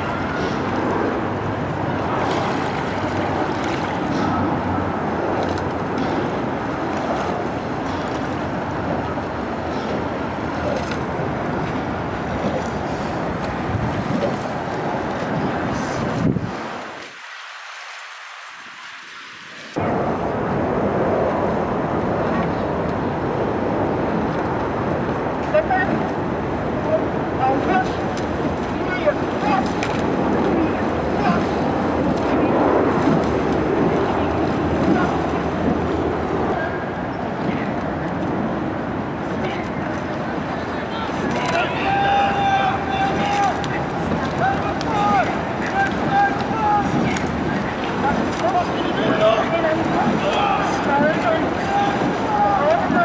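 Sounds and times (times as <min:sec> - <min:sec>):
loud rushing rumbling noise: 0:00.0 - 0:17.4, 0:19.6 - 0:25.5, 0:26.2 - 0:40.7
moving water: 0:00.0 - 0:53.0
wind on microphone: 0:00.0 - 0:53.0.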